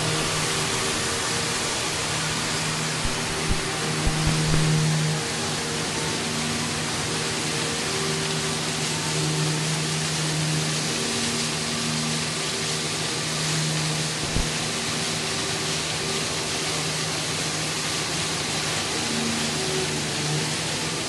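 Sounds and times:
liquid spraying: 0:00.0 - 0:05.1, 0:14.2 - 0:14.7.

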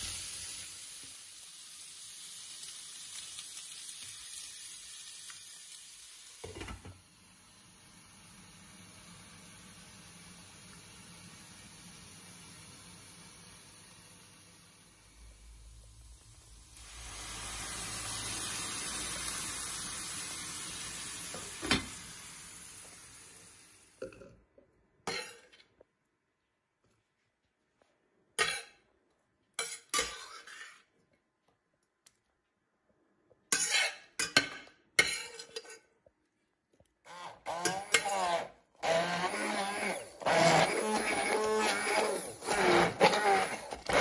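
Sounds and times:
water sizzling in a hot pan: 0:00.0 - 0:24.0
metal spoon scraping a pan: 0:29.6 - 0:31.0, 0:33.5 - 0:35.9, 0:37.5 - 0:38.5
immersion blender running: 0:37.4 - 0:44.0.

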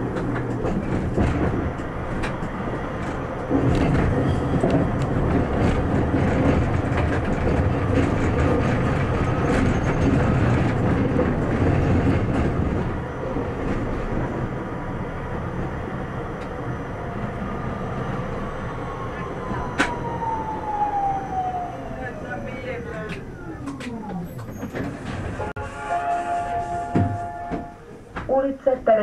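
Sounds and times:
tram rumbling on rails: 0:00.0 - 0:29.0.

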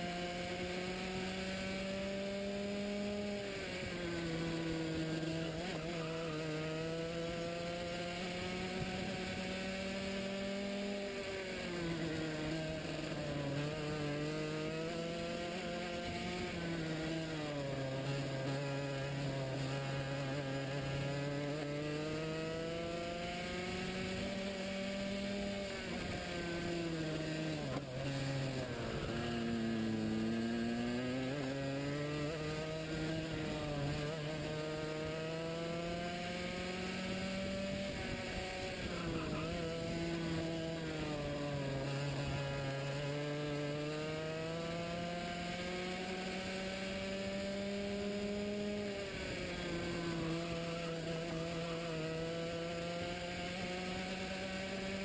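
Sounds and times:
kart engine revving: 0:00.0 - 0:55.0.

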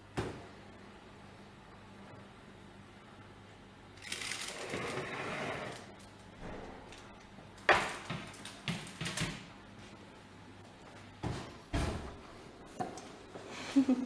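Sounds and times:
baking tray scraping on oven rack: 0:04.5 - 0:06.0.

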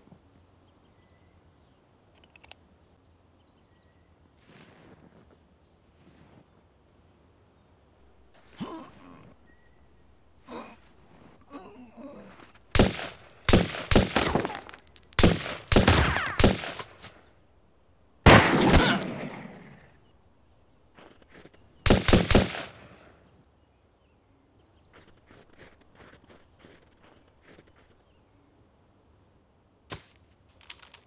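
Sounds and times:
pistol shots: 0:12.7 - 0:17.2, 0:18.3 - 0:19.8, 0:21.9 - 0:23.0.

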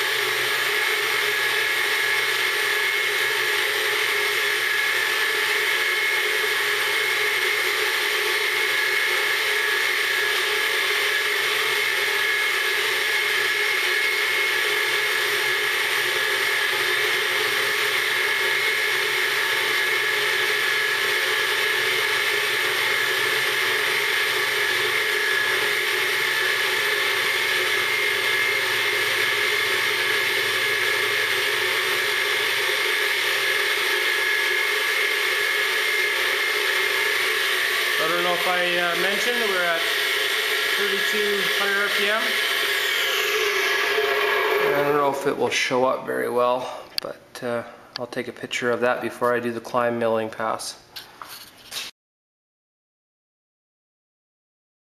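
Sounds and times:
milling machine cutting aluminium: 0:19.3 - 0:45.3.

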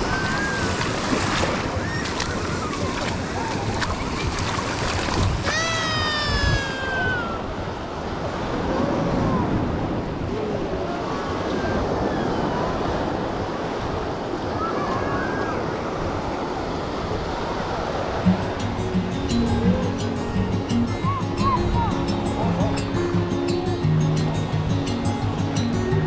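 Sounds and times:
surf breaking on sand: 0:00.0 - 0:11.8.

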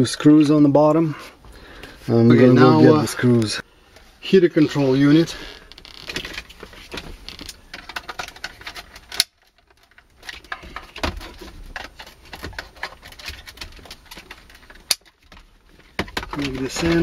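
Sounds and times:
plastic clicking and scraping: 0:05.3 - 0:17.0.

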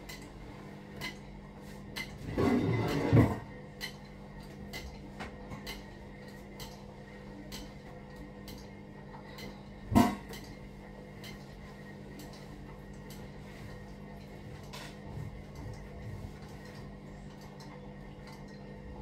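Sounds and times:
steady low hum: 0:00.0 - 0:19.0
dishes and utensils clinking: 0:01.9 - 0:06.8.

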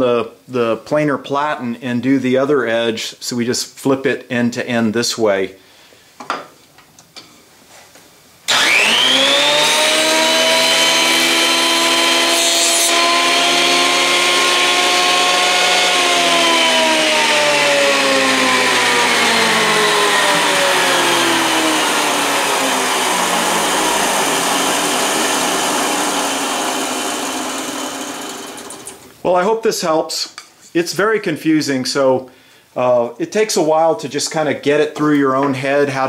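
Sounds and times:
thickness planer whine: 0:08.5 - 0:29.1.

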